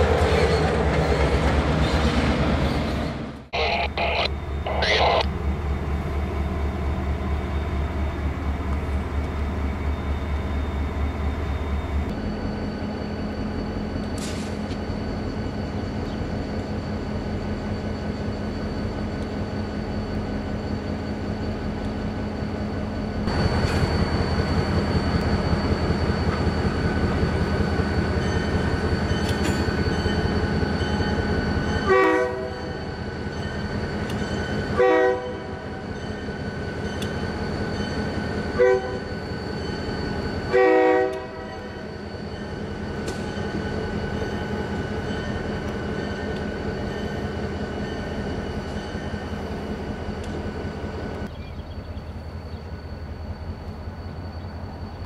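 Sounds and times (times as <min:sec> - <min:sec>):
diesel locomotive engines running: 0:00.0 - 0:55.0
locomotive horn blasts: 0:31.8 - 0:32.7, 0:34.8 - 0:35.6, 0:38.6 - 0:39.0, 0:40.5 - 0:41.6.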